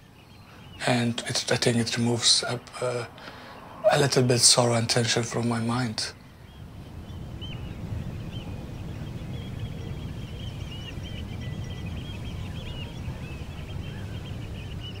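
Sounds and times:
flock of birds calling: 0.0 - 15.0.

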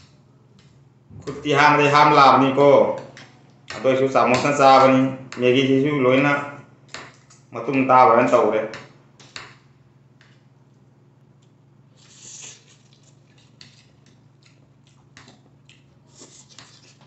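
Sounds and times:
soft mouth sounds: 11.9 - 17.0.

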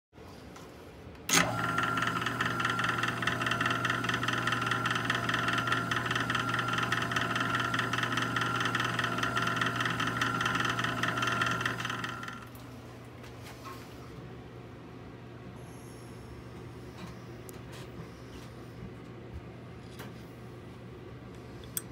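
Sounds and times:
wood lathe humming: 1.3 - 12.6.

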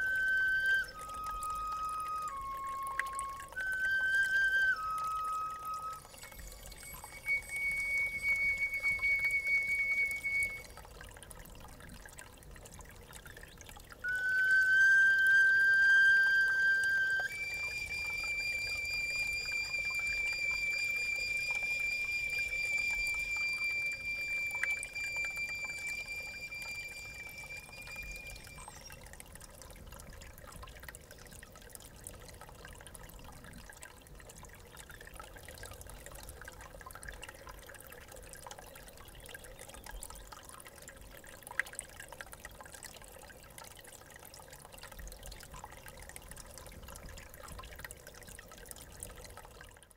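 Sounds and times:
water trickling: 0.0 - 49.9
bone flute note: 14.1 - 28.7.

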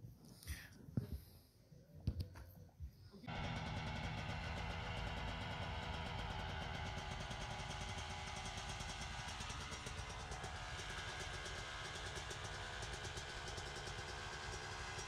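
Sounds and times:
dirt bike engine idling: 3.2 - 15.0.

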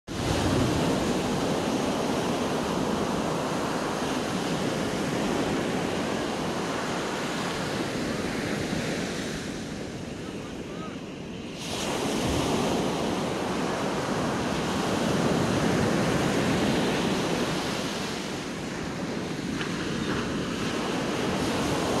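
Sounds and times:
small waves breaking on beach: 0.1 - 22.0.

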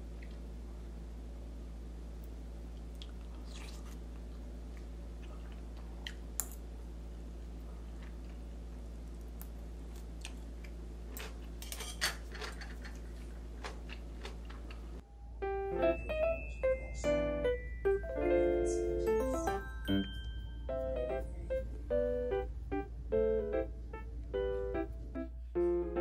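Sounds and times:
steady low hum: 0.0 - 26.0
chewing: 2.8 - 6.2, 12.4 - 15.0.

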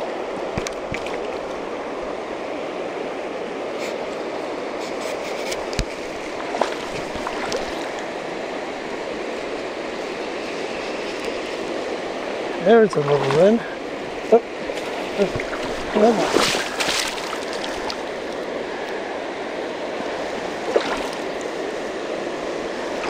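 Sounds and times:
river water rushing over rocks: 5.6 - 23.0.

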